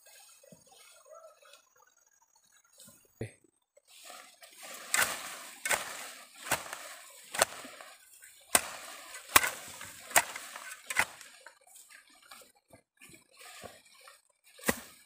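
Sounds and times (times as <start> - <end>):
short scraping rustle: 3.9 - 12.0
hand tool chopping: 4.7 - 7.9, 8.5 - 11.4, 14.6 - 15.0.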